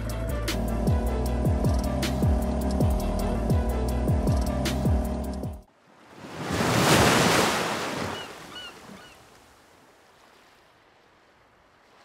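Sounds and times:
wave breaking: 6.0 - 9.4
bird cries: 8.0 - 9.4.

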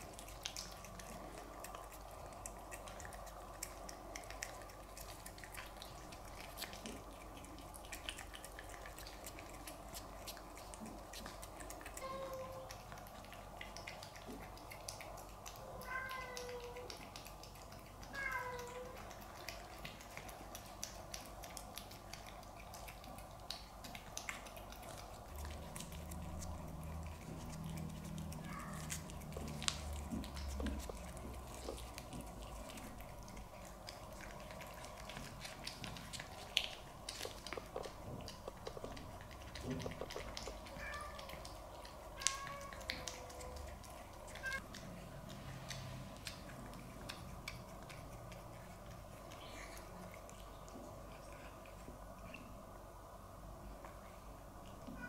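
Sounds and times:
cats licking wet clicks: 0.0 - 55.0
cats meowing: 11.9 - 12.9, 15.6 - 16.9, 18.1 - 19.1, 27.3 - 31.7, 39.6 - 44.6.

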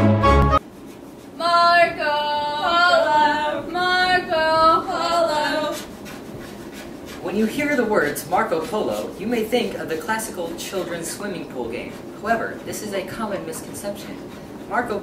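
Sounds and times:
orchestral music: 0.0 - 0.6
low background noise: 0.6 - 15.0
high voice singing unaccompanied: 1.4 - 5.8.

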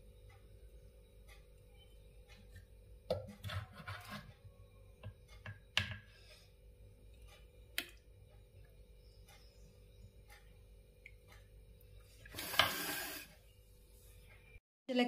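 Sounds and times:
wooden ladle scraping clay pot: 3.2 - 4.4.

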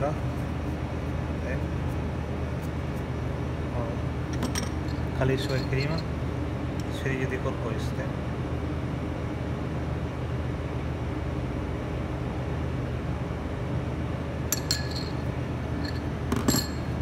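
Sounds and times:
steady low hum: 0.0 - 17.0
metal spoon clinking on bowls: 4.4 - 6.1, 14.5 - 17.0.

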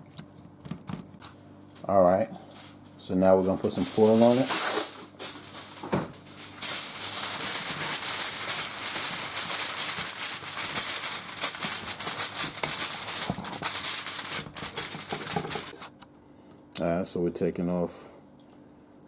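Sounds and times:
aluminum foil crinkling: 2.5 - 15.9.

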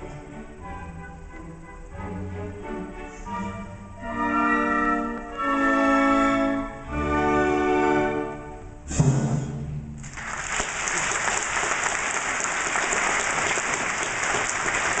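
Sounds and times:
audience applause: 10.0 - 15.0.

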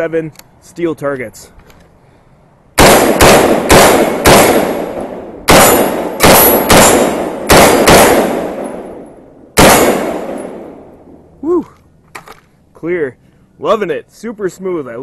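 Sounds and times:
rifle shots with echo: 2.8 - 11.1
metallic pings of steel targets: 5.6 - 7.0.

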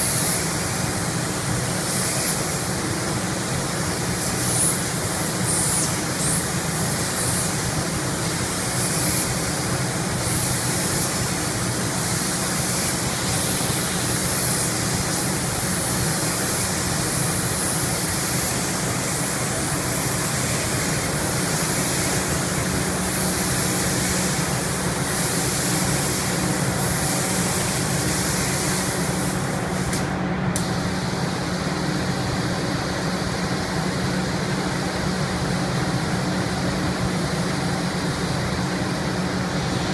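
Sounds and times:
paint spray gun hissing: 0.0 - 35.1
steady machine drone: 0.0 - 39.9.

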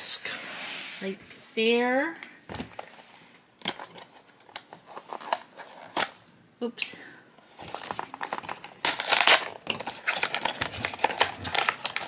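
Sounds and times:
plastic bag crinkling: 7.5 - 12.0
cardboard box ripping: 8.2 - 12.0.

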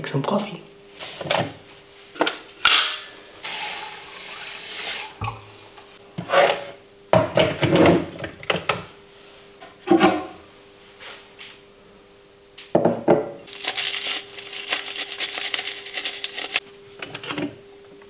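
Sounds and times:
tap running water: 3.4 - 5.9.

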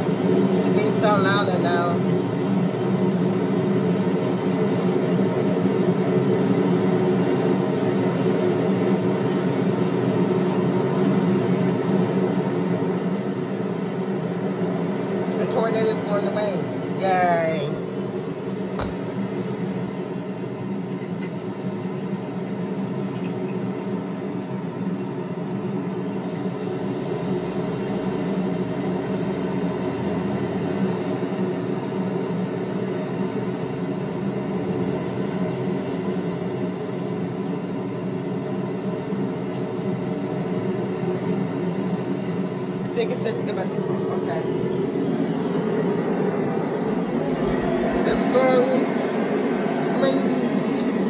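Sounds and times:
droning rumble: 0.0 - 3.2, 42.8 - 51.0
low hum: 42.0 - 51.0.

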